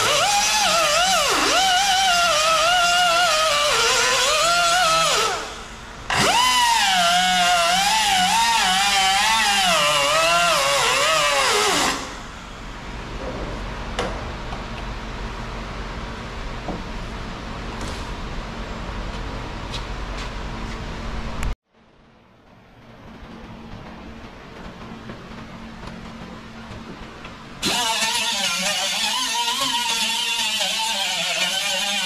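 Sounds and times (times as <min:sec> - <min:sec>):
pneumatic cut-off tool whining: 0:00.0 - 0:12.3, 0:27.6 - 0:32.0.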